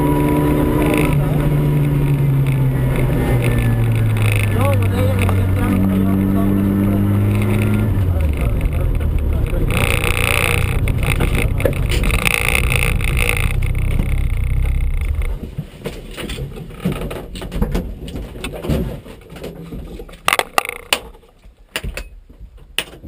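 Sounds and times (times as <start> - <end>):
car engine running: 0.0 - 15.6.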